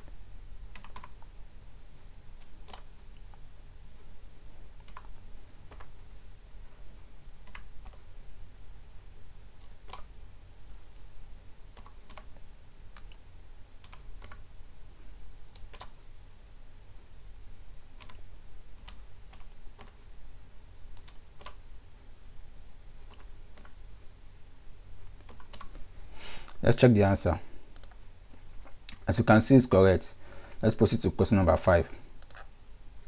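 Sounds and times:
low steady hum: 0:00.0 - 0:33.0
keyboard keys clicking: 0:00.7 - 0:01.3, 0:02.4 - 0:03.4, 0:04.8 - 0:06.1, 0:07.4 - 0:08.1, 0:09.6 - 0:10.1, 0:11.7 - 0:13.2, 0:13.8 - 0:14.4, 0:15.5 - 0:16.0, 0:18.0 - 0:18.2, 0:18.8 - 0:20.0, 0:20.9 - 0:21.6, 0:23.0 - 0:23.8, 0:25.1 - 0:25.8, 0:27.8 - 0:28.0.

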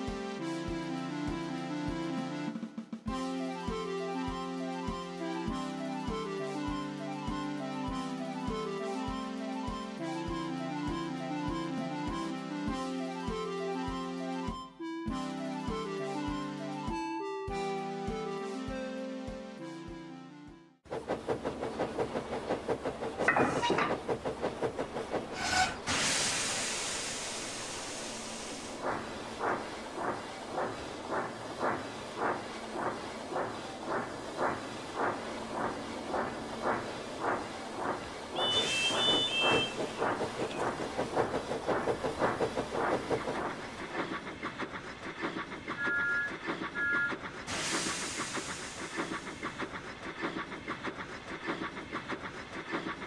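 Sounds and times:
steam engine chuffing: 0:20.9 - 0:53.0
steam hissing: 0:21.7 - 0:45.8, 0:46.4 - 0:53.0
locomotive whistle toots: 0:38.3 - 0:40.6, 0:45.8 - 0:47.2.

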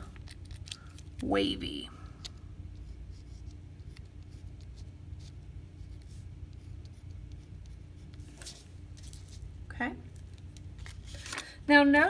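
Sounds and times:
steady low hum: 0:00.0 - 0:12.0
pencil scratching on paper: 0:02.8 - 0:08.6.

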